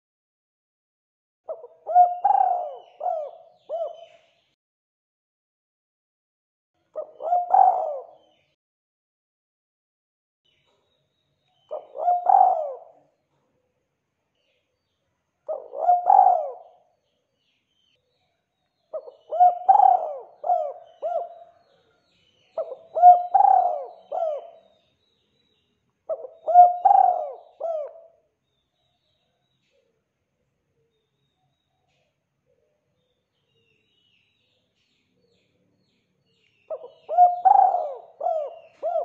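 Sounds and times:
dove cooing: 1.5 - 4.2, 7.0 - 8.3, 11.7 - 13.0, 15.5 - 16.9, 18.9 - 21.7, 22.6 - 24.7, 26.1 - 28.2, 36.7 - 39.0.

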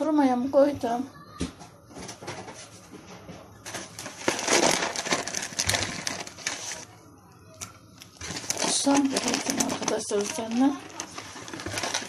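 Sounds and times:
sugar cubes rustling in box: 3.7 - 6.9, 8.2 - 12.0.

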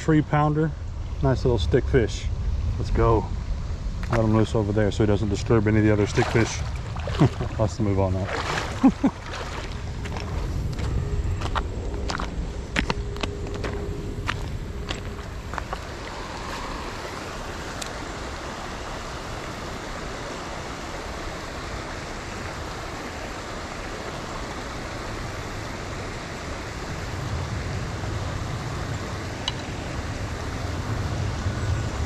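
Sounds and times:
low rumble: 0.0 - 17.9
creek water running over rocks: 4.0 - 30.9.

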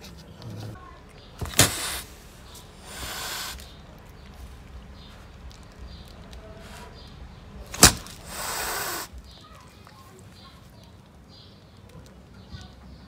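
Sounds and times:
cat hissing and spitting: 1.4 - 3.8, 7.7 - 9.2.

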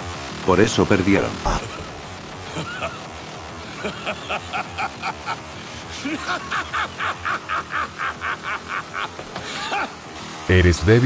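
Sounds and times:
person laughing: 1.4 - 10.0.

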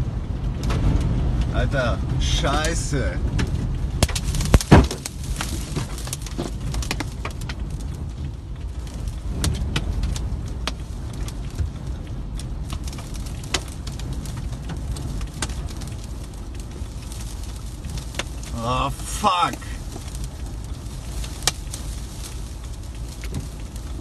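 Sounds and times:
debris ticking on car body: 0.0 - 24.0
storm wind rumbling around car: 0.0 - 24.0.

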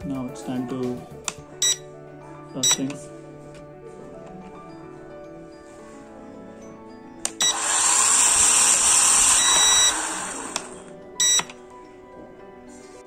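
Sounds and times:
soft background music: 0.0 - 13.0
drone propellers whining: 7.3 - 11.0.

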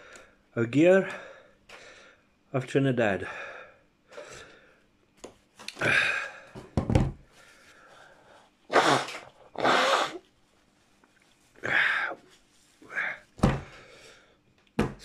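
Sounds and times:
heavy breath: 3.2 - 4.8, 5.7 - 6.6, 11.6 - 14.4
man blowing his nose: 8.7 - 10.3.

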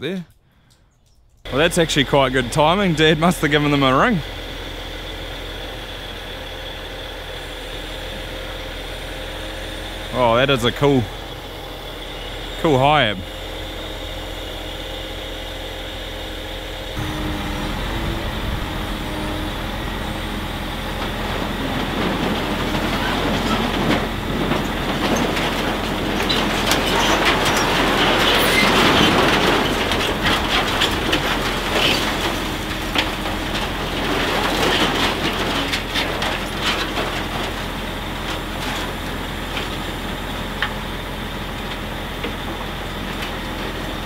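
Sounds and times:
truck diesel engine: 1.4 - 44.0
scrap metal clanking: 16.9 - 37.6.

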